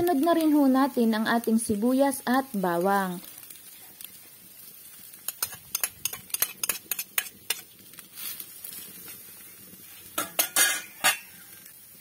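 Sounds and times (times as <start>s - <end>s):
utensil clinking against dish: 10.2s - 11.3s.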